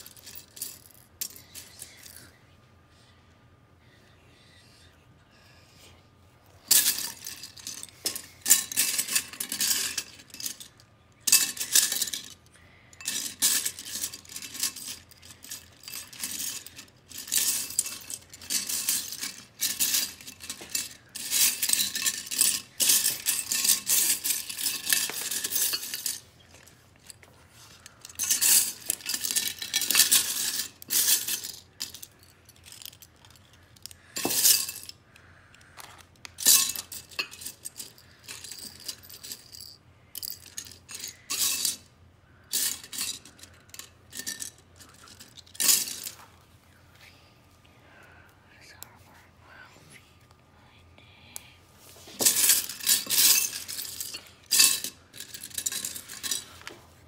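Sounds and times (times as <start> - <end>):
plastic pieces clattering in a bowl: 13.0 - 26.7, 52.2 - 56.5.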